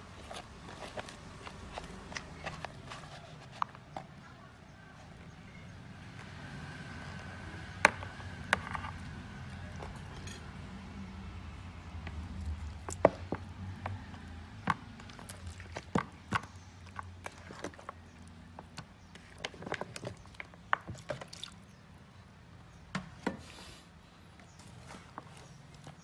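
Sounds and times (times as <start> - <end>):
chicken feet clicking and knocking: 0.0 - 10.2, 11.5 - 21.8
squelching in wet batter: 0.0 - 22.6.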